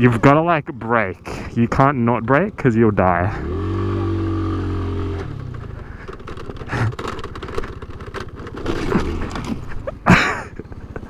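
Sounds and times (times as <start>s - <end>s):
scooter scraping over dirt: 3.0s - 11.0s
scooter engine ticking idle: 4.8s - 11.0s.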